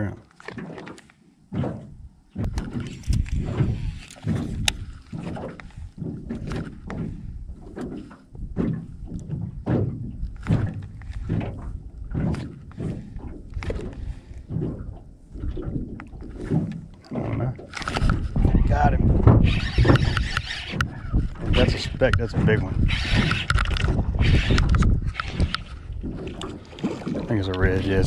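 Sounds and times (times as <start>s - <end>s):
small waves slapping a boat hull: 0.0s - 28.0s
sharp click: 19.4s - 20.9s, 21.6s - 25.7s.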